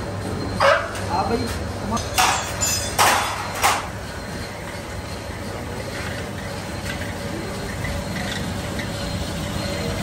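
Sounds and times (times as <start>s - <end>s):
metal lathe running: 2.7s - 10.0s.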